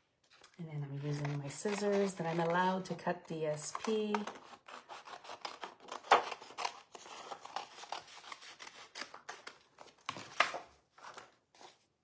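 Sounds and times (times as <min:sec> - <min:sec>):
scissors snipping paper: 0:01.0 - 0:10.6.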